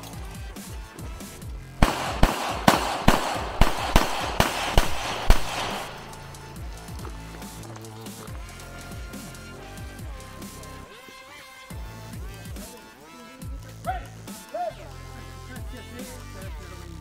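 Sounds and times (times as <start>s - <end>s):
background music: 0.0s - 17.0s
handgun shots: 1.8s - 6.3s.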